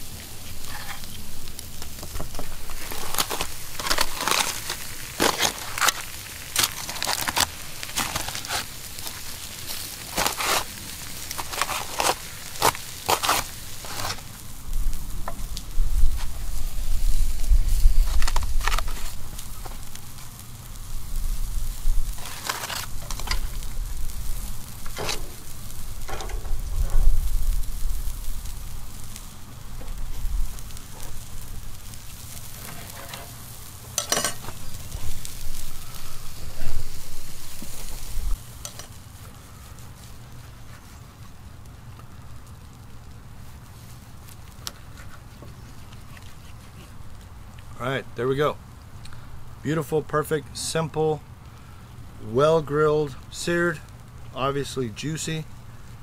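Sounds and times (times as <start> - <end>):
grill fire crackling and popping: 0.0 - 56.0
low rumble: 22.9 - 32.6.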